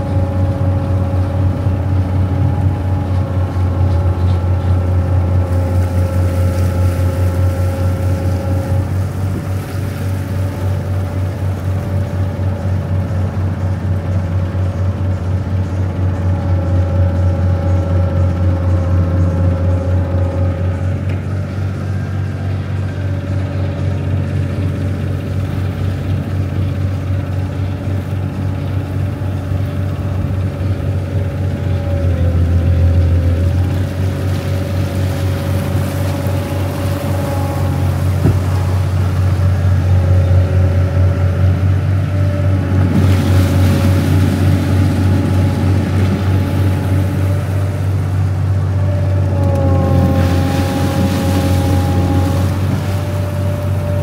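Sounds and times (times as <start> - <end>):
boat engine droning: 0.0 - 54.0
wavering whine: 0.0 - 54.0
rushing hiss of water: 4.8 - 12.0.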